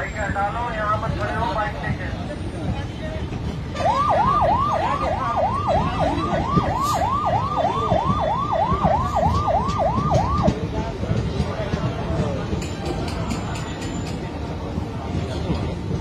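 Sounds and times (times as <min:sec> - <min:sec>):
moving train rumble: 0:00.0 - 0:16.0
electronic siren yelping: 0:03.8 - 0:10.5.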